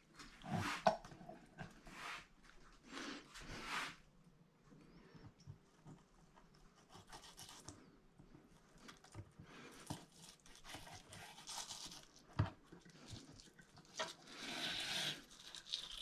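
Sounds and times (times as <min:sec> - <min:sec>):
knife slicing and scraping fish: 0:06.8 - 0:07.8, 0:09.7 - 0:16.0.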